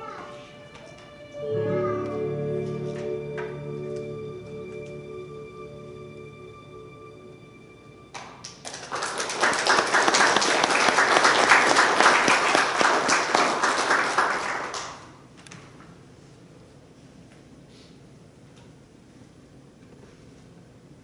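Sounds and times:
congregation applauding: 8.1 - 15.3.

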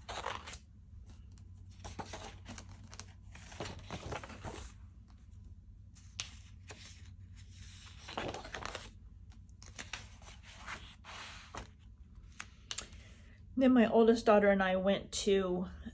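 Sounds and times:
paper pages rustling: 0.0 - 5.2, 6.0 - 12.9.

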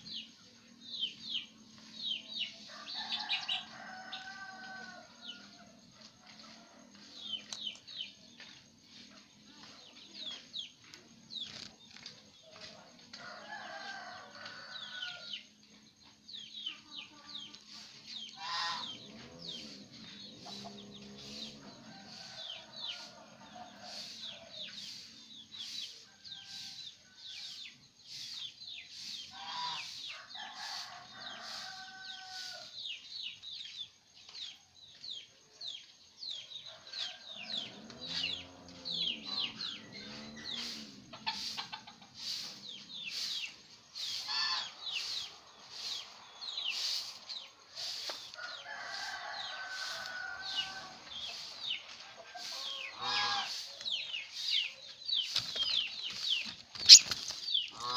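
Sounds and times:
rooster crowing: 2.7 - 7.4, 13.1 - 15.5, 18.4 - 24.9, 29.5 - 32.8, 36.7 - 43.4, 47.9 - 51.5
chickens clucking: 16.8 - 26.6, 36.8 - 57.9
birds chirping sharply: 56.4 - 57.9.

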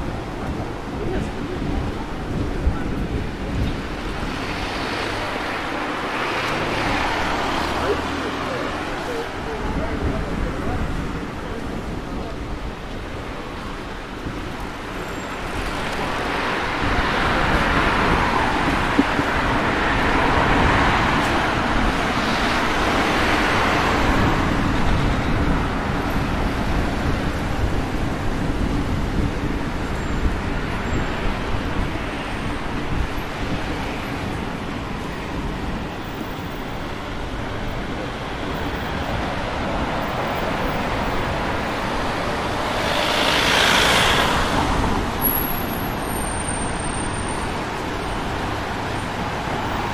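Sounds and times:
cars passing by: 0.0 - 49.9
road traffic rumble: 0.0 - 49.9.

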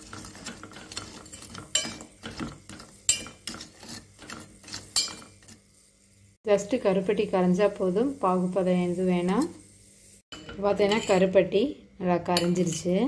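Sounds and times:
metal spoon clinking in a pot: 0.0 - 5.6, 10.3 - 11.3, 12.3 - 13.0.

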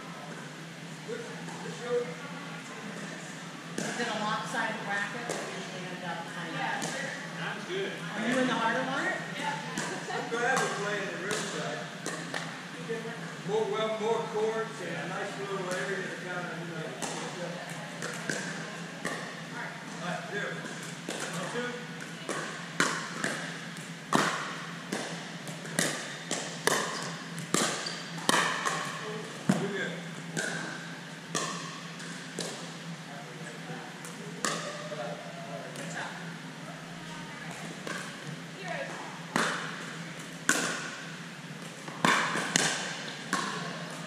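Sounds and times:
ball bouncing on gym floor: 3.7 - 5.8, 6.6 - 7.2, 9.6 - 12.6, 17.0 - 20.0, 20.6 - 32.8, 37.4 - 41.0, 41.6 - 44.0
paddles hitting plastic ball: 10.6 - 12.5, 17.0 - 19.4, 20.6 - 29.7, 30.3 - 32.8, 37.5 - 44.0
paddle hitting plastic ball: 40.5 - 41.0, 41.8 - 43.7.

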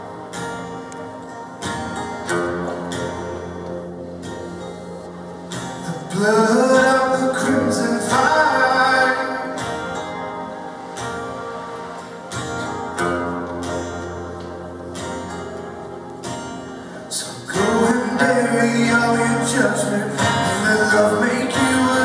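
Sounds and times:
strummed acoustic guitar: 0.0 - 22.0
man singing: 5.8 - 10.0, 17.1 - 22.0.

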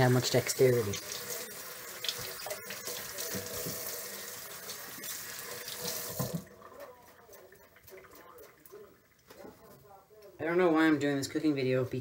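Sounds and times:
faucet running into sink: 0.0 - 7.0.

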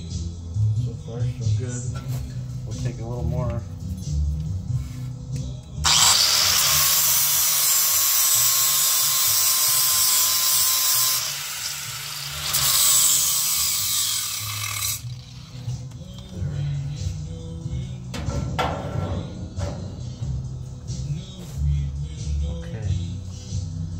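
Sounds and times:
power tool hissing and rushing: 5.8 - 15.5.

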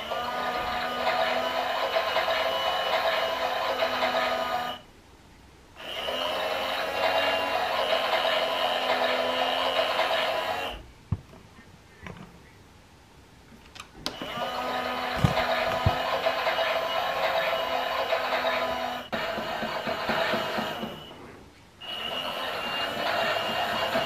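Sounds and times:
toy washing machine motor whirring: 0.0 - 4.8, 5.8 - 10.8, 14.1 - 21.2, 21.8 - 24.0.

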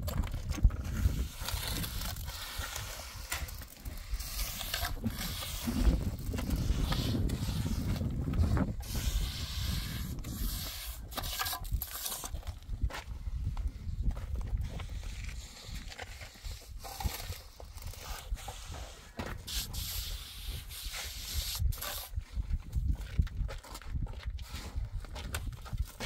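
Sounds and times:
trowel scraping mortar: 0.1 - 12.6, 14.6 - 22.2.

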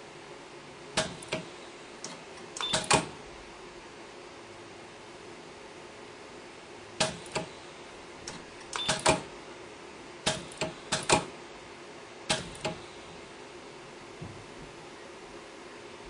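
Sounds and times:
steady low hum: 0.0 - 16.0
weld head mechanical clicks: 1.0 - 3.1, 8.2 - 9.3, 10.3 - 11.3.

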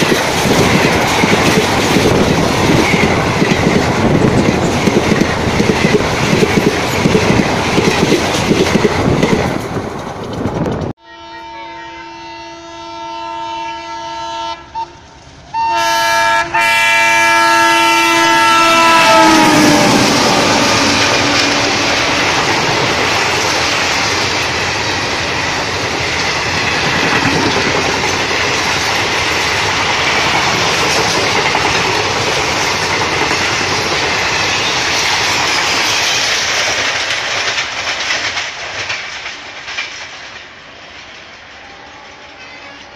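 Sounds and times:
wheels clacking over rail joints: 0.0 - 11.0, 18.7 - 40.6
train passing at speed: 0.0 - 42.9.

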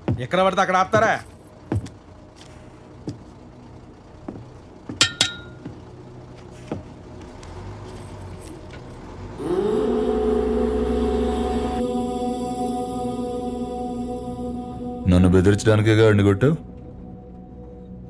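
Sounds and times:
low steady hum: 0.0 - 18.0
ringing metallic clink: 5.0 - 5.6
droning chant: 9.0 - 18.0.

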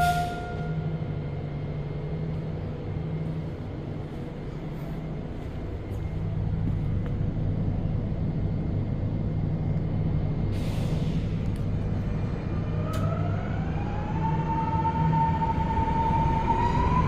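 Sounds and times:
metro train running hum: 0.0 - 17.0.

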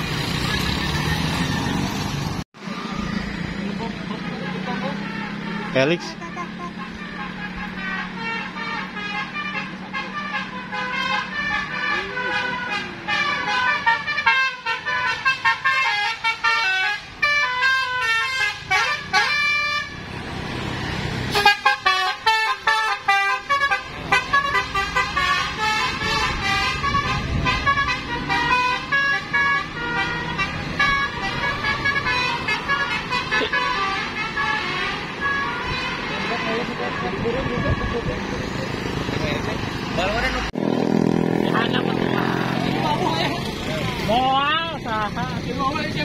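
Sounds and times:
bus passing: 0.0 - 46.0
musical air horn melody: 4.6 - 20.0, 21.3 - 38.0.

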